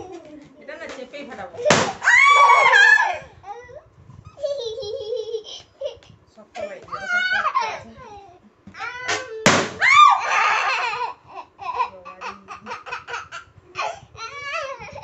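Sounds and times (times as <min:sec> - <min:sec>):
people laughing: 0:00.0 - 0:00.6, 0:04.4 - 0:06.0
balloon bursting: 0:01.6 - 0:02.5, 0:09.1 - 0:10.1
person shrieking: 0:02.0 - 0:03.3, 0:09.8 - 0:11.0.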